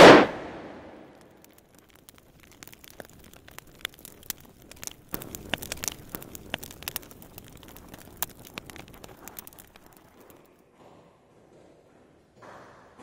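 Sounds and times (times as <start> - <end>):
crackling and sharp pops: 0.0 - 10.6.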